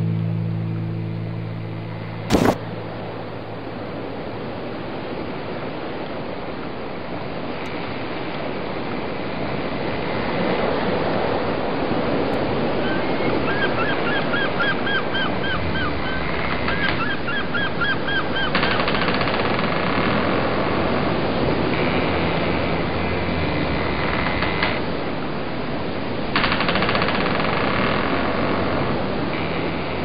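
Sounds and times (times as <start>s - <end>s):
rapid short repeated calls: 2.3s - 2.6s
wind and water rushing past boat: 2.3s - 30.0s.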